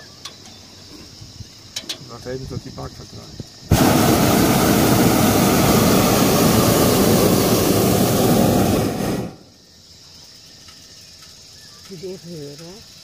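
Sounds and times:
propane burner blast: 0:03.6 - 0:09.6.

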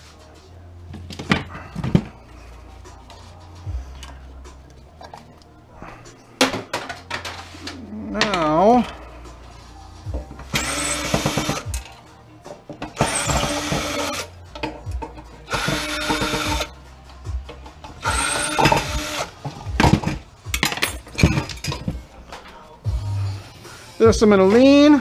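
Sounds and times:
loose parts clicking and knocking: 0:10.1 - 0:16.7, 0:17.4 - 0:22.0.

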